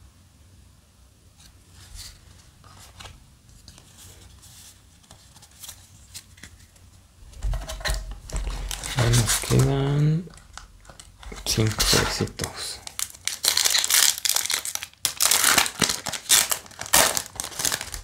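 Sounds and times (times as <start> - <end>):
rustling of foil packs: 7.4 - 18.0.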